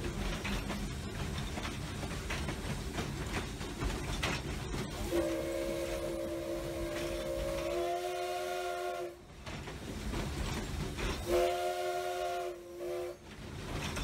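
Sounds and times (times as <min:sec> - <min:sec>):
steam locomotive whistle: 0:05.0 - 0:09.3, 0:11.2 - 0:13.2.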